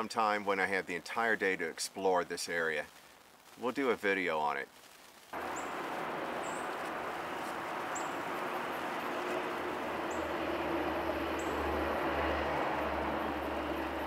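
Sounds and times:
small bird chirping: 0:05.4 - 0:11.7
outdoor rushing noise: 0:05.4 - 0:14.0.

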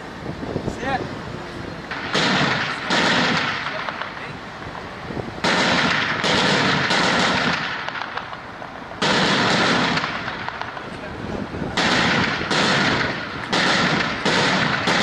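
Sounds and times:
gunfire bursts: 0:01.9 - 0:04.3, 0:05.4 - 0:10.9, 0:11.7 - 0:15.0.

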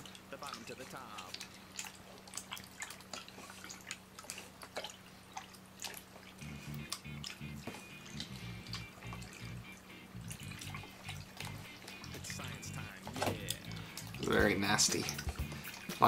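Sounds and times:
hands squelching wet slime: 0:00.0 - 0:16.0
background music with low beat: 0:06.4 - 0:16.0.

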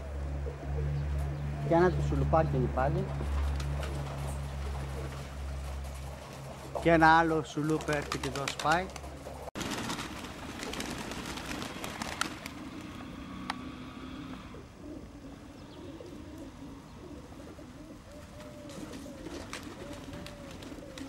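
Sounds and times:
pigeons cooing: 0:00.0 - 0:02.3, 0:10.4 - 0:21.0.

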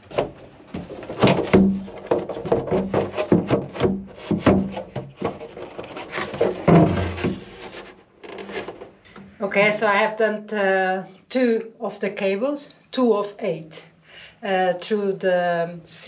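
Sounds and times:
plastic knocking and scraping on wood: 0:00.0 - 0:09.3.

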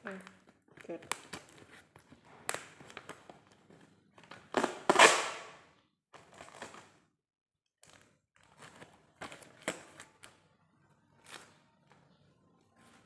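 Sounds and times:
tape and cardboard tearing: 0:04.5 - 0:05.6.

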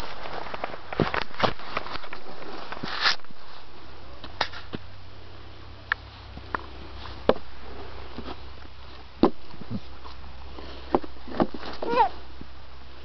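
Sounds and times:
low rumble: 0:04.8 - 0:10.4.

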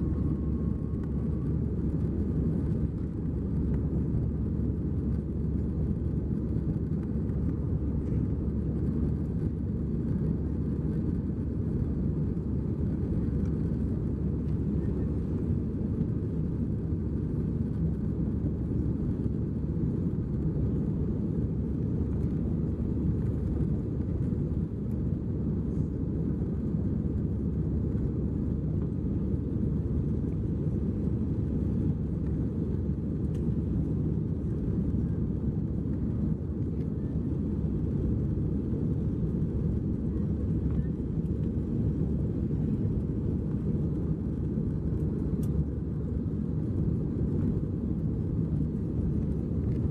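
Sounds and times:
jet engine cabin rumble: 0:00.0 - 0:49.9.

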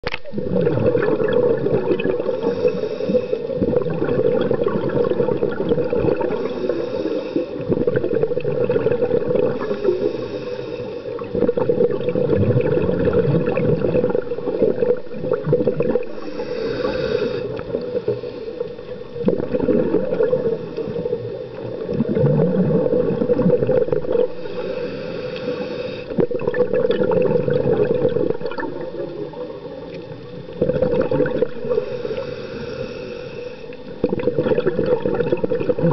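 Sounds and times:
bubbles gurgling: 0:00.0 - 0:06.8, 0:07.6 - 0:10.2, 0:11.2 - 0:24.6, 0:26.1 - 0:32.1, 0:33.7 - 0:35.9
regulator hissing inhale: 0:02.2 - 0:03.6, 0:06.2 - 0:07.7, 0:09.5 - 0:11.4, 0:16.0 - 0:19.1, 0:20.4 - 0:21.8, 0:24.2 - 0:26.2, 0:31.5 - 0:33.9.

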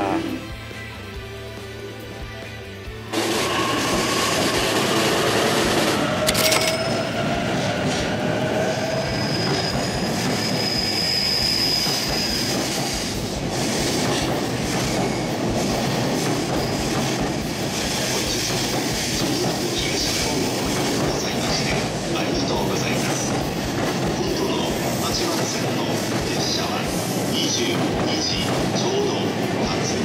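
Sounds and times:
train wheels clattering over rails: 0:03.1 - 0:30.0
high wheel squeal: 0:03.2 - 0:13.8.

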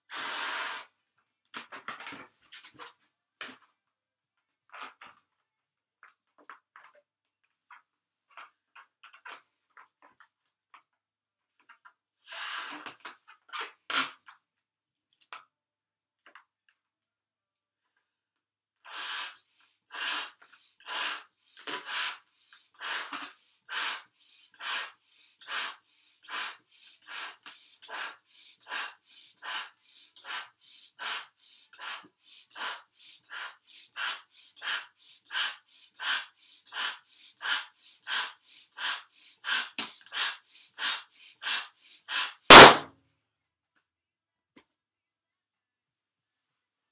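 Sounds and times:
breaths blowing up balloon: 0:00.1 - 0:00.9, 0:12.2 - 0:13.1, 0:18.9 - 0:42.8
balloon bursting bang: 0:42.5 - 0:42.8.

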